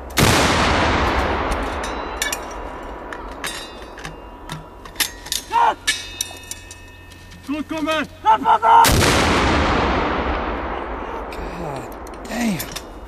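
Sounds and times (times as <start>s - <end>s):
rolling echo of gunshot: 0.2s - 1.8s, 8.9s - 11.3s
metallic clicks and clinks: 1.5s - 7.9s, 11.7s - 13.0s.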